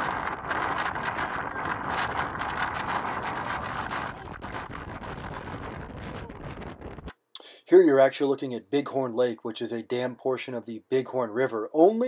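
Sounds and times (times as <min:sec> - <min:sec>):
strong wind buffeting microphone: 0:00.0 - 0:07.1.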